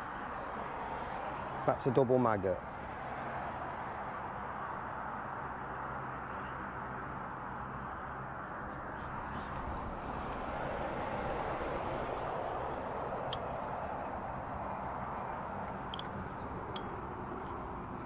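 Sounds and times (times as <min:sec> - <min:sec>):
road traffic rushing: 0:00.0 - 0:18.0.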